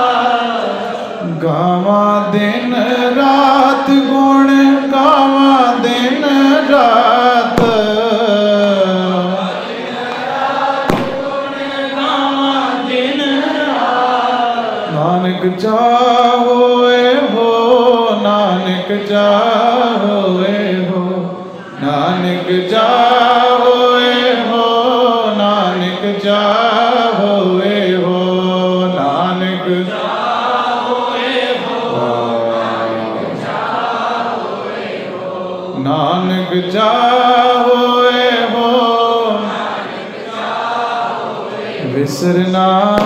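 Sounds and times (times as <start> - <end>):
man singing melodic line: 1.3 - 9.4
drum strokes: 7.6 - 8.0.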